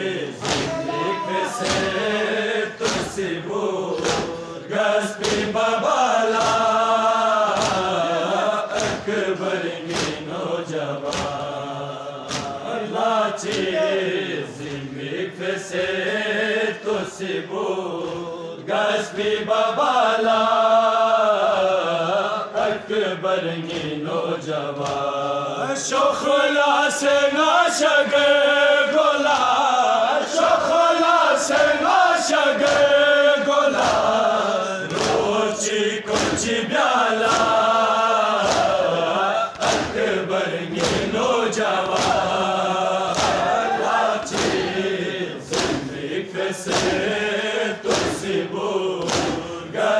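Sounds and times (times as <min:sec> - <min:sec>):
men chanting a lament: 0:00.0 - 0:49.9
reciter at a microphone: 0:00.0 - 0:49.9
hands slapping chests: 0:00.4 - 0:02.0, 0:02.8 - 0:04.5, 0:05.1 - 0:05.6, 0:06.2 - 0:09.2, 0:09.8 - 0:10.4, 0:11.0 - 0:11.6, 0:12.2 - 0:12.8, 0:13.4 - 0:13.9, 0:14.6 - 0:15.0, 0:17.9 - 0:18.3, 0:23.6 - 0:24.1, 0:24.7 - 0:25.2, 0:29.2 - 0:29.6, 0:32.6 - 0:33.1, 0:33.7 - 0:34.2, 0:34.8 - 0:35.4, 0:36.0 - 0:36.5, 0:37.2 - 0:37.7, 0:38.4 - 0:40.1, 0:40.7 - 0:42.4, 0:43.0 - 0:46.0, 0:46.6 - 0:47.2, 0:47.8 - 0:48.4, 0:49.0 - 0:49.6.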